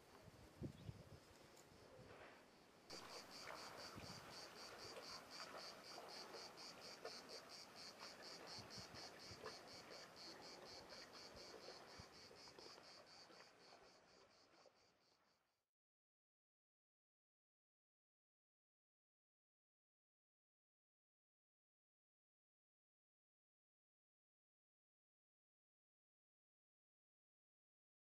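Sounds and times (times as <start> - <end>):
cicadas singing: 2.9 - 14.8.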